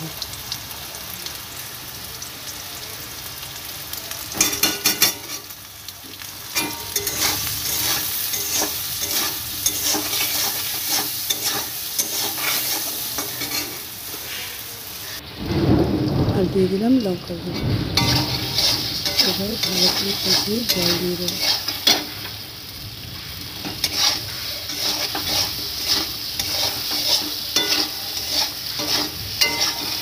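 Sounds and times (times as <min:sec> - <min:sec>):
vegetables sizzling in oil: 0:00.0 - 0:30.0
metal spatula scraping pan: 0:06.6 - 0:15.2, 0:17.5 - 0:22.3, 0:23.6 - 0:30.0.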